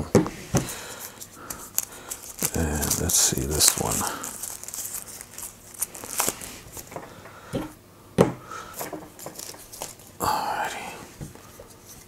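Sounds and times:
plastic wrapping crinkling: 0:00.7 - 0:07.1, 0:08.8 - 0:10.2.

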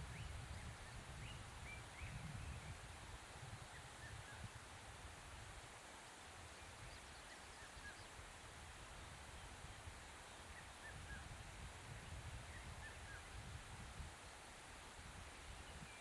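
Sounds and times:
wind rumble on microphone: 0:00.0 - 0:05.7, 0:07.8 - 0:16.0.

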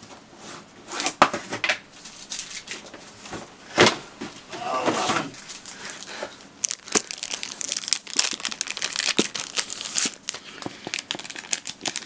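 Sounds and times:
plastic bag crinkling: 0:05.4 - 0:12.0.

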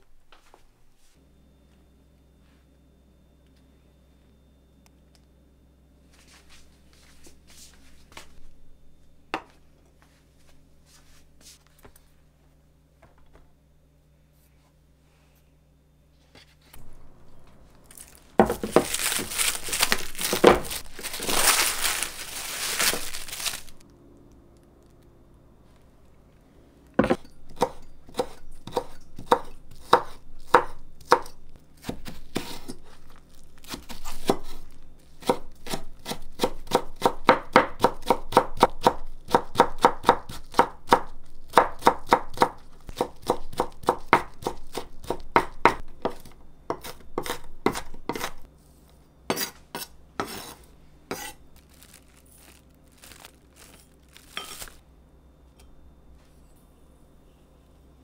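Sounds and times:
knife chopping on wooden board: 0:27.0 - 0:32.7, 0:35.2 - 0:48.4, 0:49.3 - 0:51.4.

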